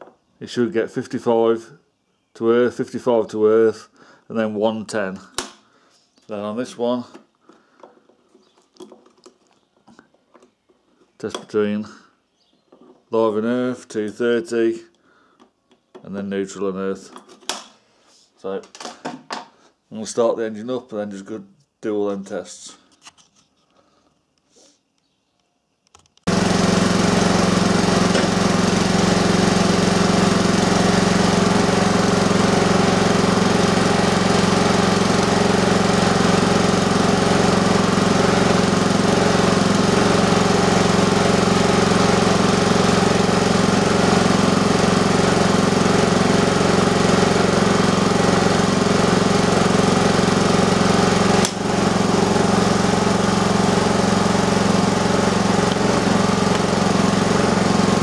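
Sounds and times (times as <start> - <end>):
generator engine running: 26.3 - 58.0.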